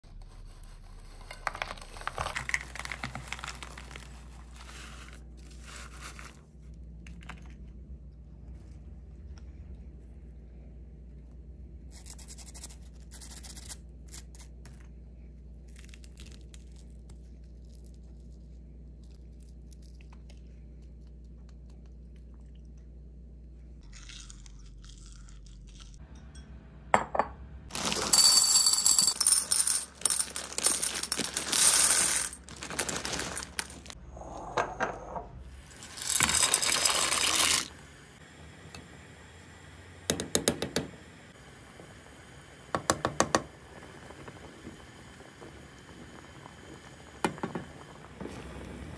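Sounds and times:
crisp crackles of fried pasta: 0:01.3 - 0:06.6, 0:15.5 - 0:22.1, 0:29.9 - 0:34.0
dry pasta poured into pan: 0:29.4 - 0:34.0, 0:35.7 - 0:37.7.

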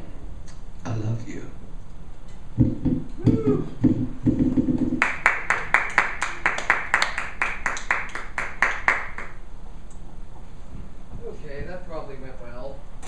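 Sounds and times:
small audience clapping: 0:04.2 - 0:09.4.

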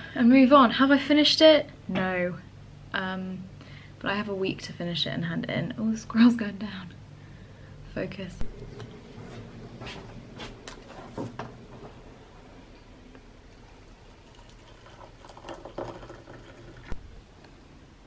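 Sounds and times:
hot water pouring into mug: 0:10.6 - 0:17.1.

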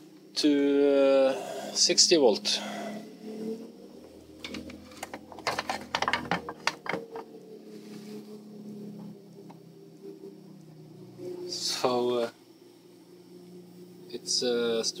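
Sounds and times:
faint steady hum: 0:00.0 - 0:15.0
sharp handling clicks and taps: 0:04.4 - 0:07.3.

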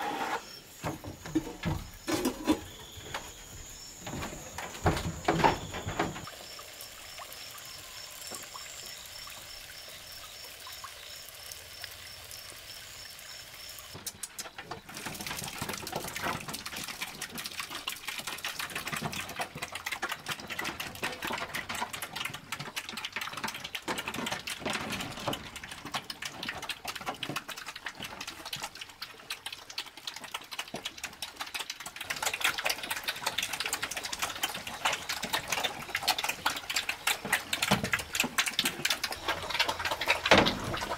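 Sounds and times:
night insects chirping: 0:00.0 - 0:15.4
pigs slurping and chomping: 0:00.0 - 0:40.9
liquid feed pouring: 0:00.4 - 0:40.9.

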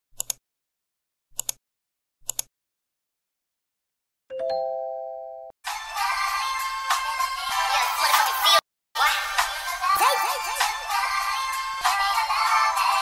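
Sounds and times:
upbeat music: 0:04.3 - 0:13.0.

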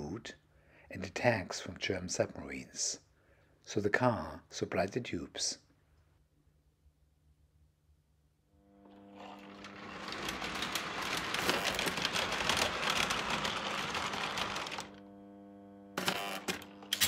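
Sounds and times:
steady electrical hum: 0:00.0 - 0:17.0
chain conveyor clattering rattle: 0:09.2 - 0:14.9.

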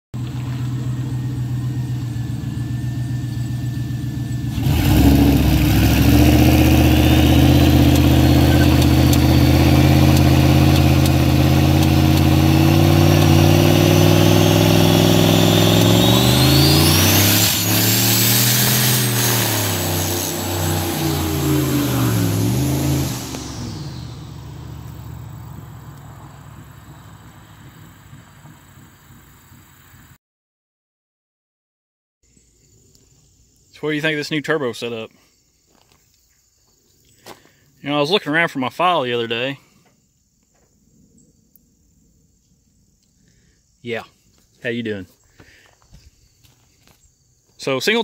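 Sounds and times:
engine popping: 0:00.2 - 0:30.1
car engine idling and revving: 0:00.2 - 0:30.2
turbo whistle: 0:08.2 - 0:09.4.

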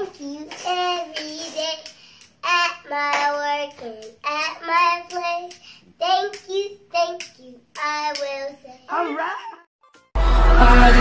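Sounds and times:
young child singing: 0:00.0 - 0:09.0.

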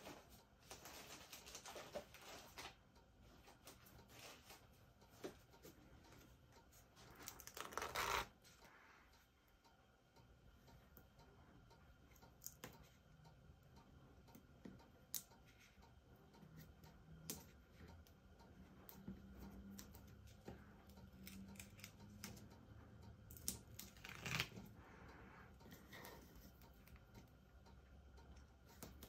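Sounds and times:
paper rustle: 0:00.0 - 0:02.8.

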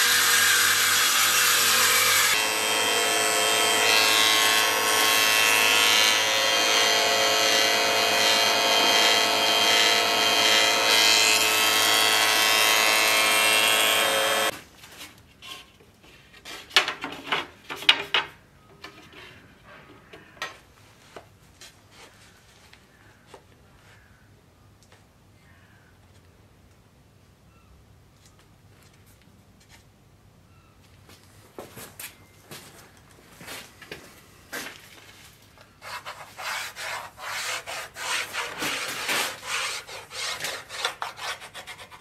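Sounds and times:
table saw cutting wood: 0:00.0 - 0:14.5, 0:35.8 - 0:42.0.

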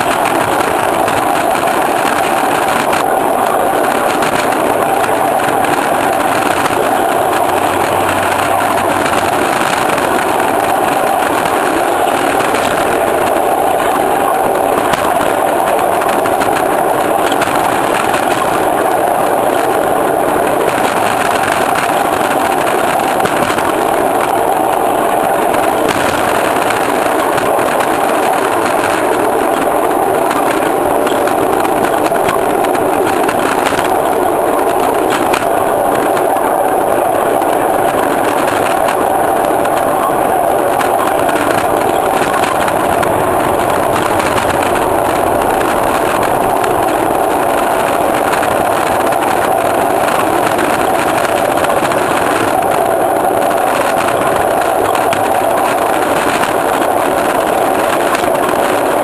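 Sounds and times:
train wheels on rails: 0:00.0 - 0:59.0.

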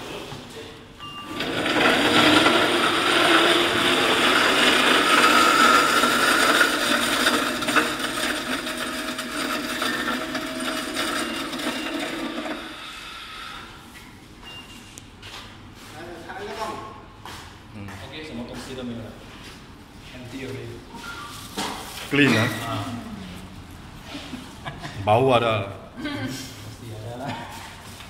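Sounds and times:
garbage disposal grinding: 0:01.2 - 0:13.7.

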